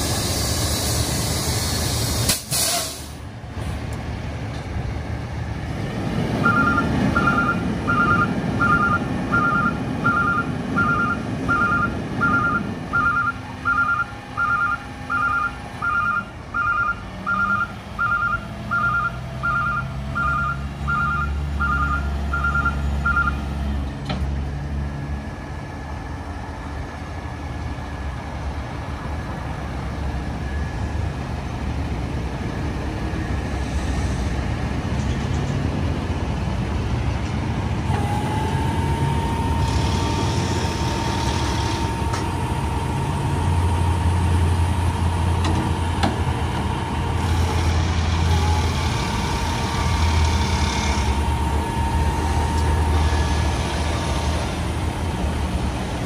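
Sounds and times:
diesel truck engine running: 0.0s - 56.0s
hydraulic hoist whine: 37.8s - 55.4s.

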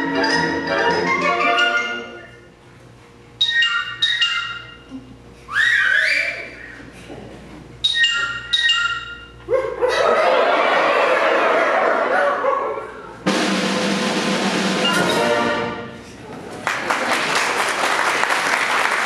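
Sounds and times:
concert band playing: 0.0s - 2.3s, 13.2s - 16.2s.

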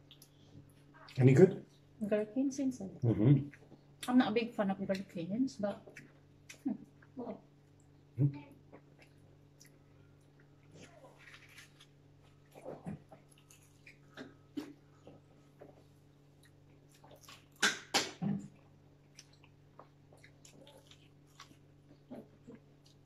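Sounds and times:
faint steady hum: 0.0s - 23.0s
wet chewing and lip smacking: 8.7s - 23.0s.

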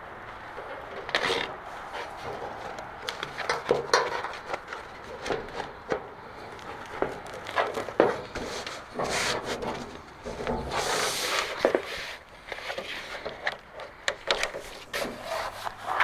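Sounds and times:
rubber scuffing on sheet metal: 6.9s - 13.3s, 14.5s - 16.0s.

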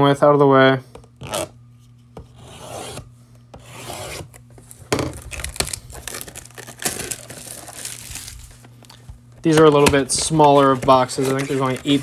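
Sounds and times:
tool slitting plastic wrap: 5.0s - 8.6s.

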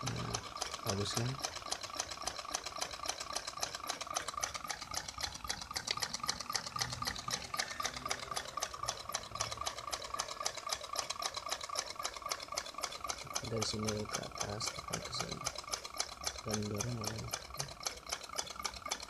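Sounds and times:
small engine linkage clicking: 0.0s - 19.0s.

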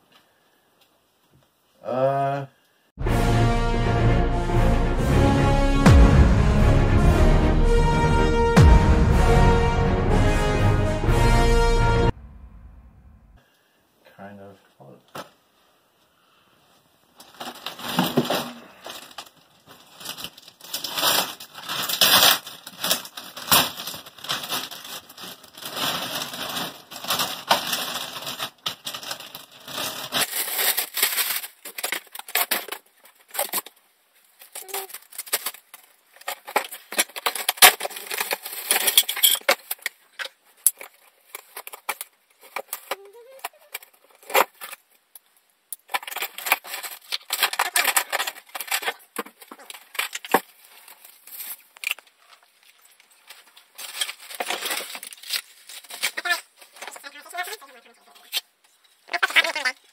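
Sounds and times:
plastic wrap crinkling: 17.1s - 59.9s.

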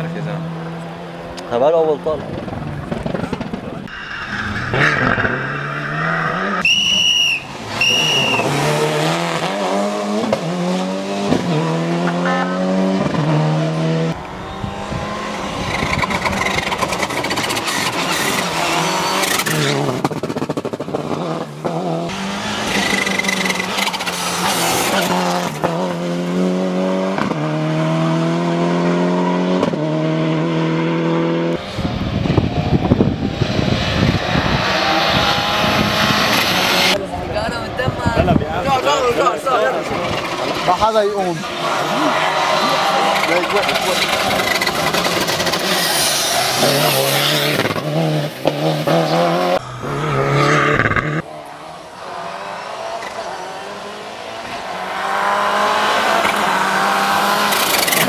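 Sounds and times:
short high squeals: 6.6s - 8.5s
car engine revving hard: 7.5s - 37.0s, 39.2s - 58.0s
gear shifts: 39.7s - 48.6s.

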